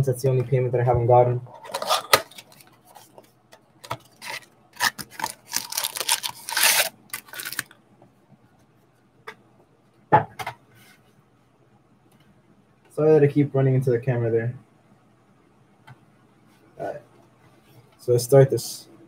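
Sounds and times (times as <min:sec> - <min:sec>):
cardboard box and foil packs rustling: 0:04.0 - 0:07.7.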